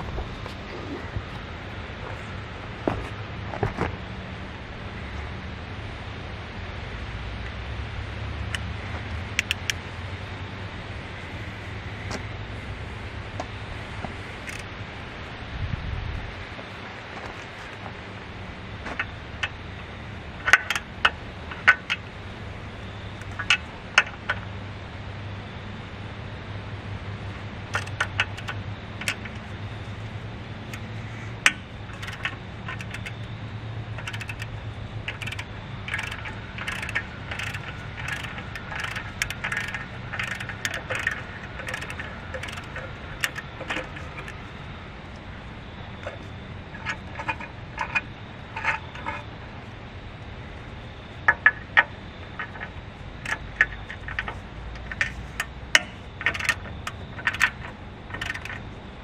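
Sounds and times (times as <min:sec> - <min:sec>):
steady low hum: 0:00.0 - 0:59.0
hand tools clinking: 0:30.7 - 0:33.3, 0:34.0 - 0:44.4, 0:51.3 - 0:58.7.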